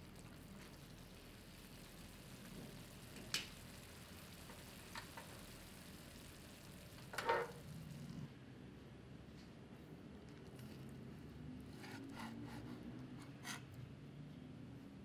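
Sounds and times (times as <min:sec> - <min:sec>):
sauce sizzling in a frying pan: 0:00.0 - 0:08.2.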